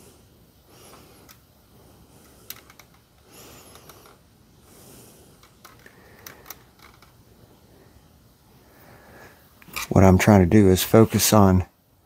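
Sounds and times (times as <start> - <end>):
soft hissing rushes: 0.0 - 12.0
press clicks and creaks: 5.4 - 7.2.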